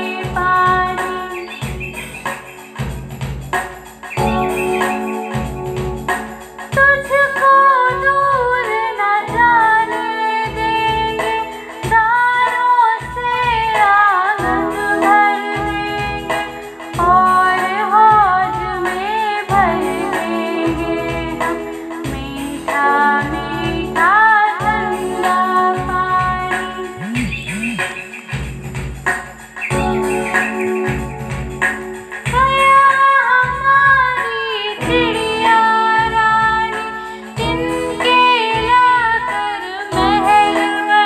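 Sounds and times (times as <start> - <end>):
woman singing: 0.0 - 1.9, 6.7 - 27.0, 32.3 - 41.0
steady percussion beat: 0.0 - 7.4, 9.3 - 34.2.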